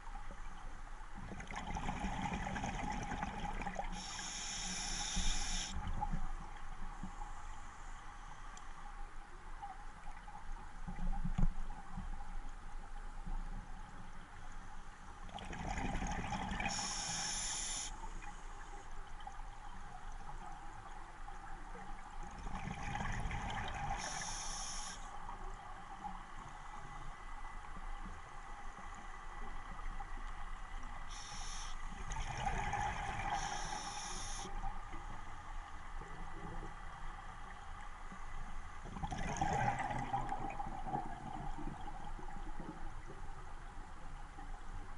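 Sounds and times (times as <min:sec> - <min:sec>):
scuba regulator breathing: 0:03.9 - 0:05.8, 0:16.7 - 0:18.0, 0:24.0 - 0:25.1, 0:31.1 - 0:31.9, 0:33.3 - 0:34.5
exhaled bubbles rumbling: 0:15.3 - 0:16.8, 0:22.3 - 0:24.0, 0:32.1 - 0:33.4, 0:38.9 - 0:42.7.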